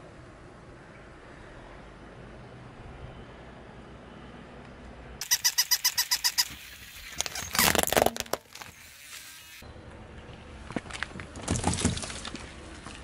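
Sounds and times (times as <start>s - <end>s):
tyre crunching plush toy: 5.2s - 8.8s.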